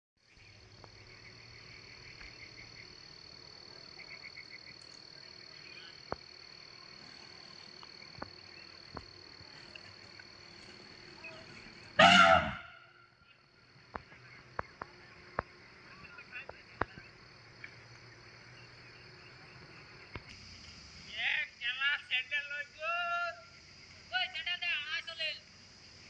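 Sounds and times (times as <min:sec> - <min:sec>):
high insect drone: 0:00.2 - 0:26.0
faint clicks: 0:04.7 - 0:05.1
loud brief animal call: 0:12.0 - 0:13.0.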